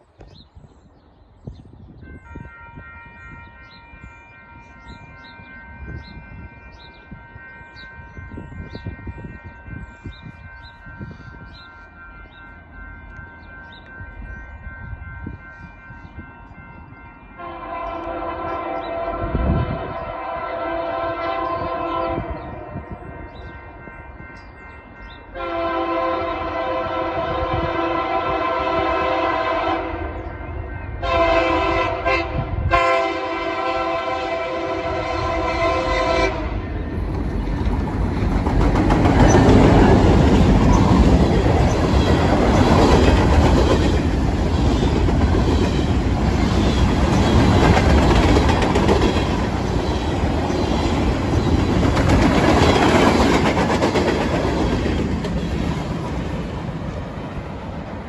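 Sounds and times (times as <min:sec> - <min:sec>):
locomotive air horn blasts: 0:02.2 - 0:09.7, 0:17.3 - 0:23.0, 0:25.4 - 0:36.8
locomotive engines rumbling: 0:04.8 - 0:58.0.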